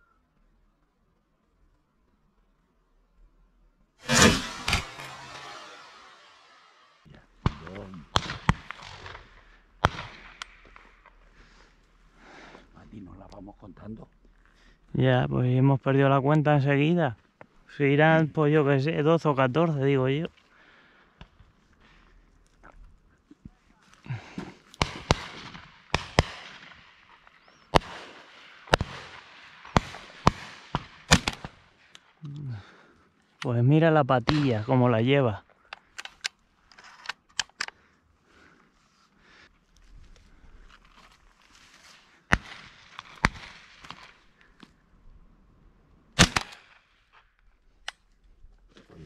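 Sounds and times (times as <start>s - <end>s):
distant shotgun shots: 4.0s - 11.2s, 24.8s - 31.7s, 42.3s - 44.4s, 46.2s - 47.1s.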